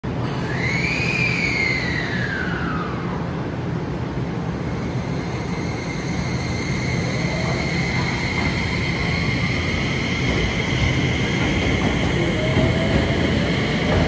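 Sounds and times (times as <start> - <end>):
electric train motor whine: 4.5 - 14.0.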